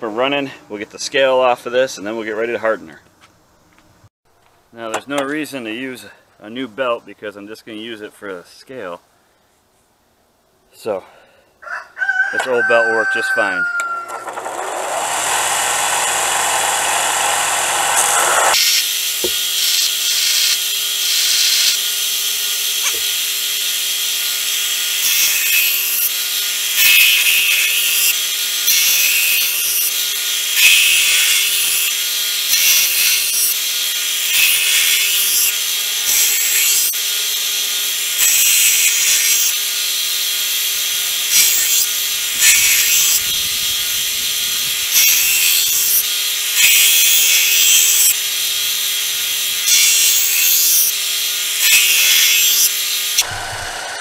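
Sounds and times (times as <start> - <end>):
belt grinder motor hum: 14.1 - 54.0
blade grinding on belt: 14.2 - 54.0.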